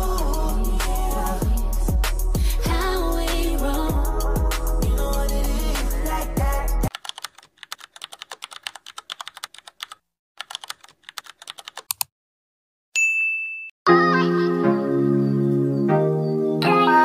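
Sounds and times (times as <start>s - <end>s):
hip hop song with bass beat: 0.0s - 6.9s
rapid keyboard typing: 6.9s - 12.1s.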